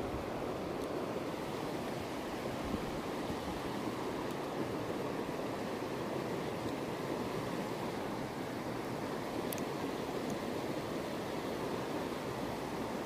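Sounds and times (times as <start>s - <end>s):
stream rushing over stones: 0.0s - 13.0s.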